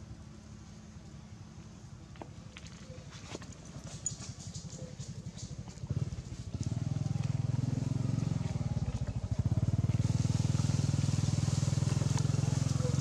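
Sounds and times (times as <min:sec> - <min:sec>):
small engine running: 0:04.5 - 0:13.0.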